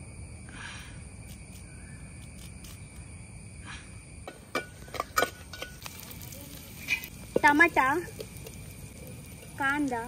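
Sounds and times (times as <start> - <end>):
insects trilling: 0.0 - 10.0.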